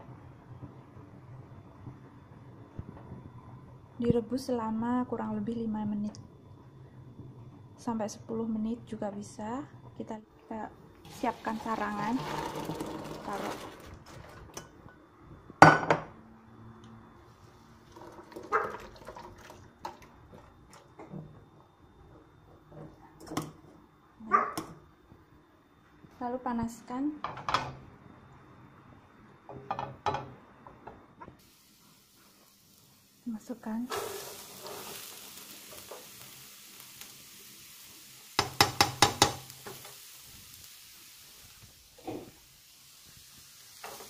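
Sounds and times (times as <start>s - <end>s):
beans sizzling in a pan: 11.0s - 13.8s, 31.4s - 44.0s
metal strainer knocking on pan: 38.4s - 39.4s.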